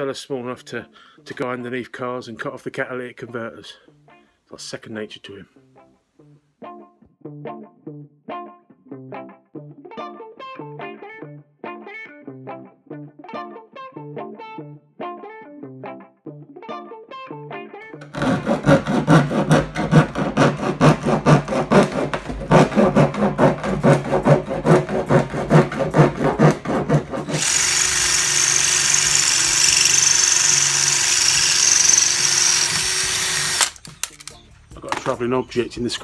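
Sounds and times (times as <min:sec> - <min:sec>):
hand tool scraping plastic drum: 0:18.0 - 0:27.8
cordless drill whining: 0:27.2 - 0:34.3.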